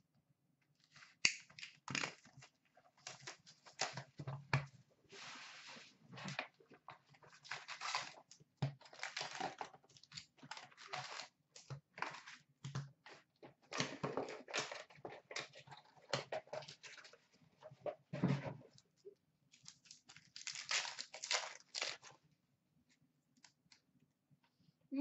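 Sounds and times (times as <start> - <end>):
foil packs crinkling: 7.2 - 11.3, 19.6 - 22.2.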